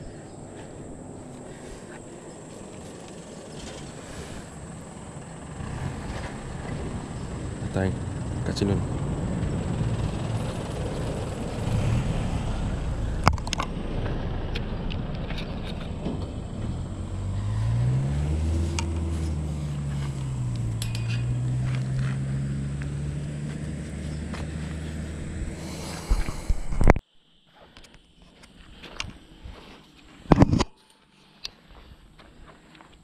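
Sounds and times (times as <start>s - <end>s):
traffic rumble: 0.0s - 27.0s
vehicle engine accelerating: 2.5s - 26.9s.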